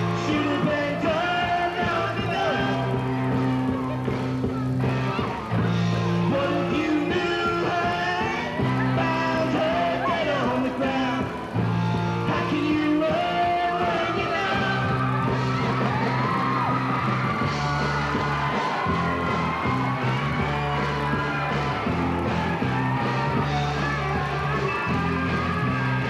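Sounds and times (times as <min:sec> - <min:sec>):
drums: 0:00.0 - 0:26.0
electric guitar: 0:00.0 - 0:26.0
low bass notes: 0:00.0 - 0:26.0
person singing and yelling: 0:00.1 - 0:05.3, 0:06.2 - 0:11.4, 0:12.3 - 0:15.2.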